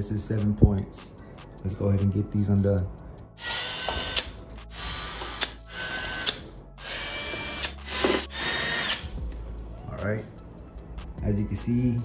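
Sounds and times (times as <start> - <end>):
cordless drill whining: 3.4 - 9.1.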